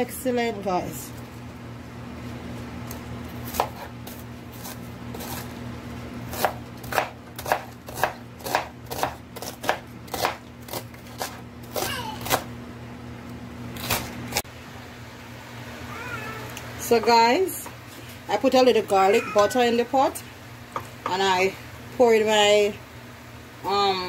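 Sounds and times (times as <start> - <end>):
knife chopping on cutting board: 3.5 - 5.4, 6.3 - 12.4.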